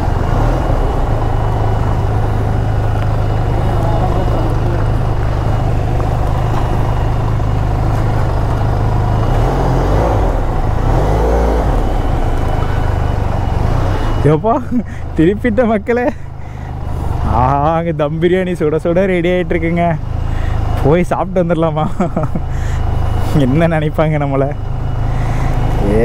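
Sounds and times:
motorcycle engine at low revs: 0.0 - 26.0
road and wind noise: 0.0 - 26.0.

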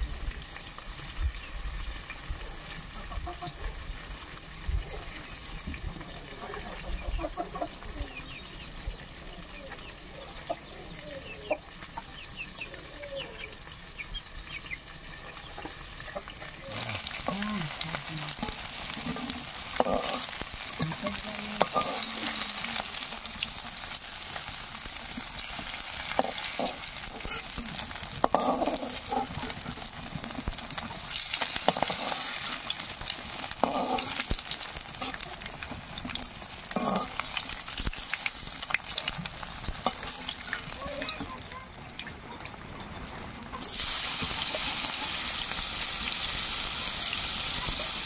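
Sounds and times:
fish sizzling in hot oil: 0.0 - 48.0
metal spatula scraping a wok: 28.2 - 29.8, 31.4 - 32.8, 33.6 - 34.4.

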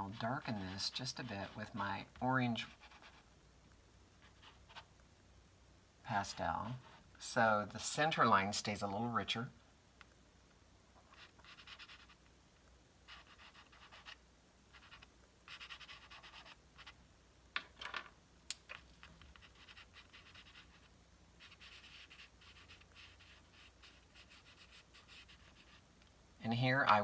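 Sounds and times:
pastel scratching on paper: 2.6 - 3.2, 11.1 - 12.2, 13.1 - 17.0, 19.3 - 25.8.

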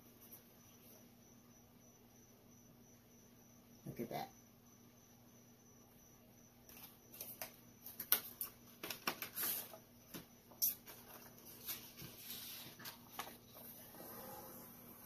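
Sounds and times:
paper and plastic rustling: 6.7 - 9.8, 10.8 - 13.8.

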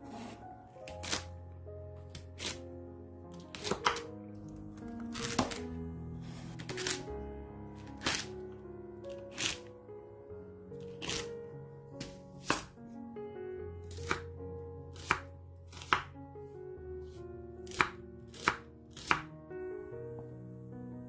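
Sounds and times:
soft background music: 0.0 - 21.0
knife chopping on wooden board: 12.0 - 12.7, 13.9 - 14.2, 15.0 - 16.1, 17.7 - 19.2.

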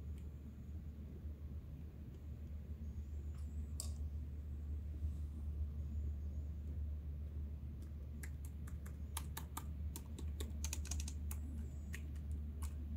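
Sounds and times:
steady low hum: 0.0 - 12.9
laptop key clicks: 8.2 - 12.8.

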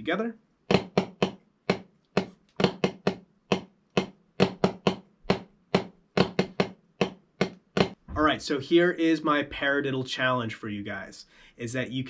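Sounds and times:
drumsticks tapping practice pad: 0.7 - 8.0.

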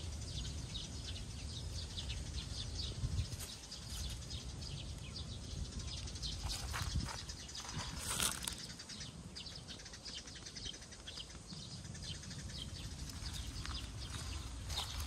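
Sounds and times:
small birds chirping: 0.0 - 15.0
steady low rumble: 11.5 - 15.0.

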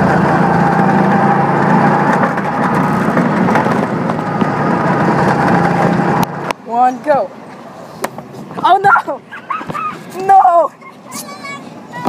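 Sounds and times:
go-kart engine running: 0.0 - 7.2.

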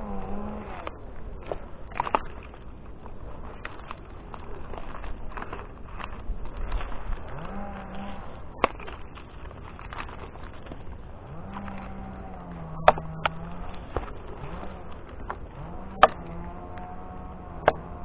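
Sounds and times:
electric motor whining: 0.0 - 1.0, 7.2 - 8.4, 11.1 - 18.0.

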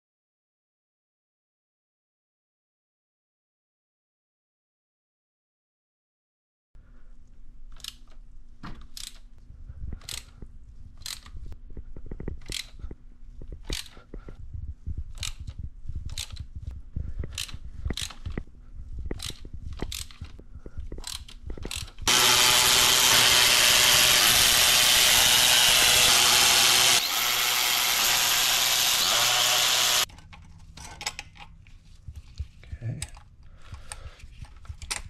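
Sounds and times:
hand ratchet clicking: 10.0 - 10.3, 11.0 - 11.4, 12.4 - 12.8, 13.6 - 14.0, 15.1 - 16.5, 17.3 - 18.4, 19.1 - 20.4, 21.0 - 30.1
cordless ratchet running: 21.0 - 30.1.

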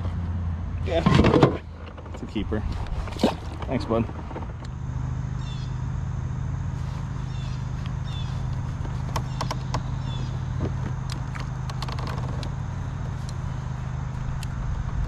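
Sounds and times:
steady low hum: 0.0 - 15.0
bird chirps: 5.3 - 6.0, 7.0 - 10.6.

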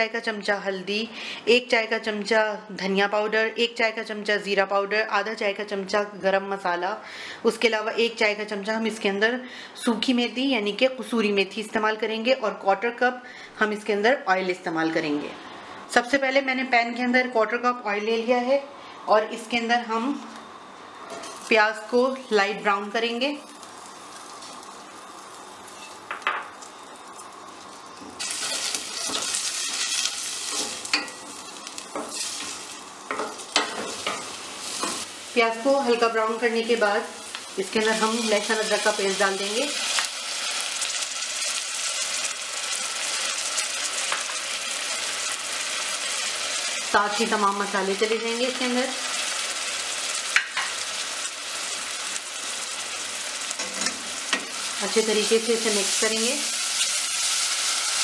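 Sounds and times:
onion sizzling in oil: 21.0 - 58.0.

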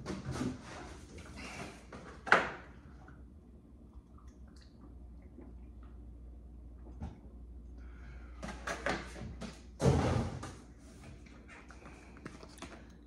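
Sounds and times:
refrigerator hum: 0.0 - 13.0
items clicking and rattling in fridge: 8.4 - 13.0.

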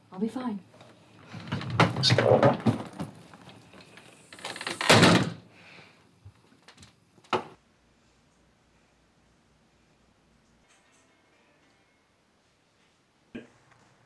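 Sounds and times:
glass door swinging shut: 4.4 - 5.4.

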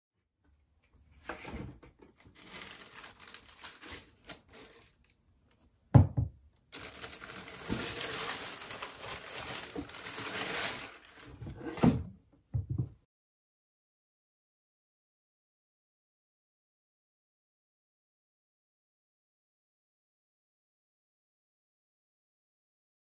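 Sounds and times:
tissue paper crinkling: 2.2 - 5.1, 6.7 - 11.5.

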